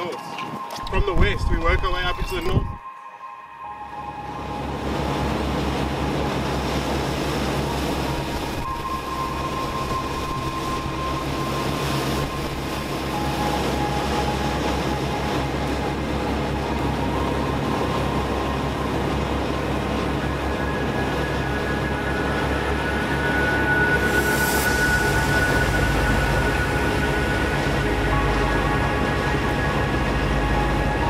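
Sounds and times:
boat engines droning: 0.0s - 31.0s
wind: 0.0s - 31.0s
wake water rushing: 3.7s - 31.0s.

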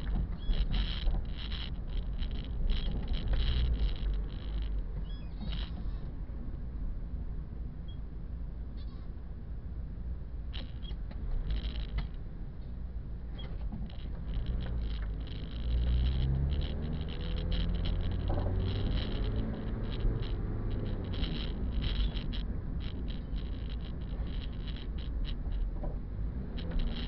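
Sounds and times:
light rattles: 0.0s - 6.1s, 10.5s - 12.3s, 13.2s - 27.0s
road rumble: 0.0s - 27.0s
car engine from inside cabin: 13.8s - 27.0s.

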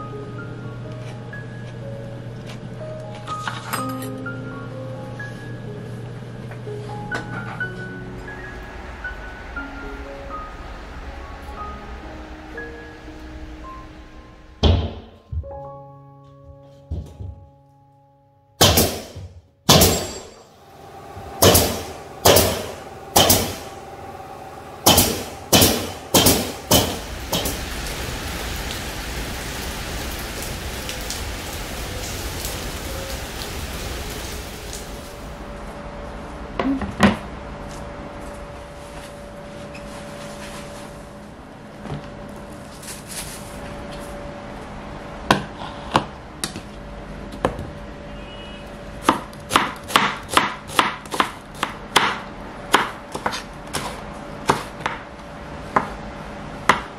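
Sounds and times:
heavy rain hissing: 8.0s - 14.6s, 20.4s - 35.7s
hammer nailing boards: 18.6s - 20.2s, 21.4s - 23.6s, 24.8s - 27.6s, 49.1s - 52.2s.

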